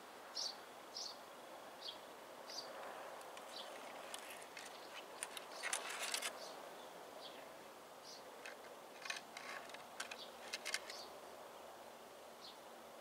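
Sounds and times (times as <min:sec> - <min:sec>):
crisp crackling clicks: 0:03.2 - 0:06.4, 0:08.4 - 0:11.0.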